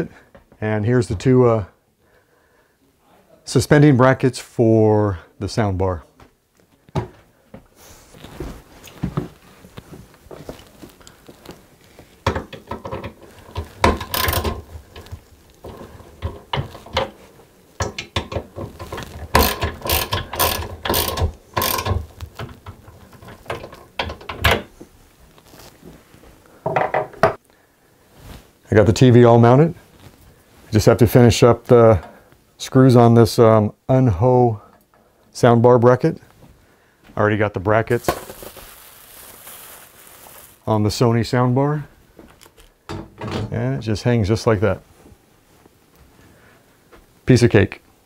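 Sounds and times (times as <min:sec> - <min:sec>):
metal bracket knocks and rattles: 0:12.2 - 0:24.7, 0:42.9 - 0:43.6
hand tool rapid clicking: 0:19.3 - 0:22.1.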